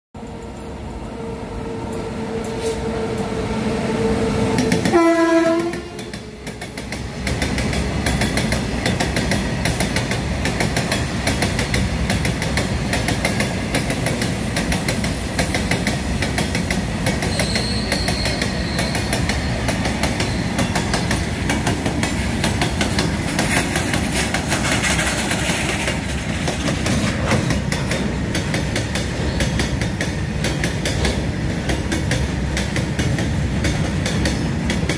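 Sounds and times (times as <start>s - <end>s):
train horn: 1.7s - 6.1s
train wheels clattering on rails: 4.5s - 34.9s.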